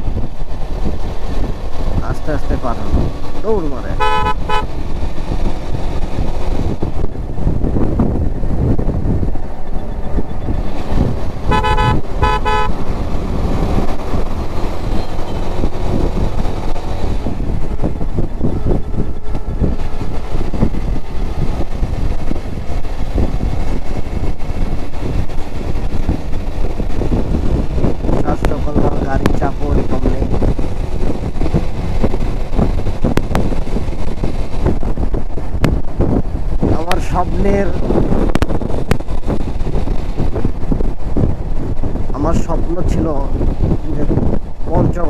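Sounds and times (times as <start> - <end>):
motorcycle engine: 0.0 - 42.1
road noise: 0.0 - 45.0
vehicle horn short beeps: 4.0 - 4.7, 11.5 - 12.8.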